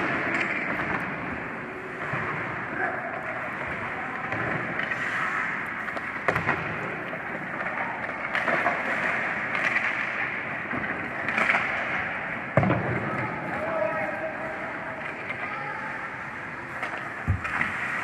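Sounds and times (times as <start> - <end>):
skates scraping on ice: 0.0 - 13.6, 14.4 - 18.0
hockey sticks and puck clacking: 0.0 - 18.0.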